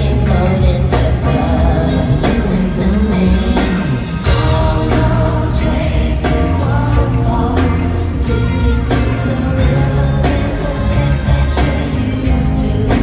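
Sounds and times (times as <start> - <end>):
live band playing: 0.0 - 13.0
women singing: 0.0 - 13.0.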